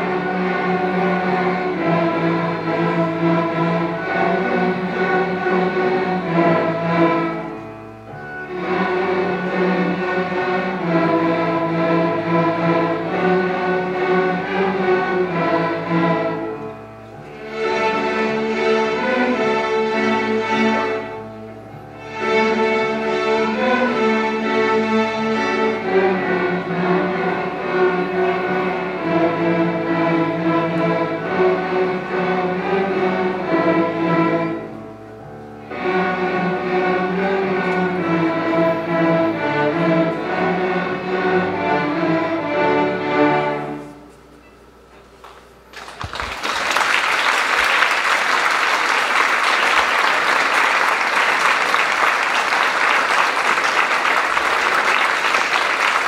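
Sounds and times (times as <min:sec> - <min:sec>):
string orchestra playing: 0:00.0 - 0:44.3, 0:46.9 - 0:56.0
audience applause: 0:45.7 - 0:56.0.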